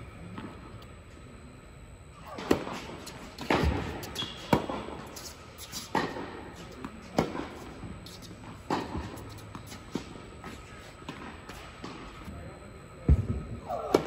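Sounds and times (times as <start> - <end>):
tennis ball bouncing on court: 2.3 - 4.8
tennis ball struck by rackets: 3.4 - 4.8.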